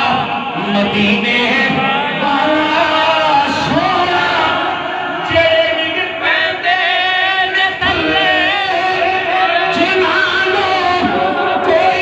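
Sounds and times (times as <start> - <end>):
man singing into a microphone: 0.0 - 12.0.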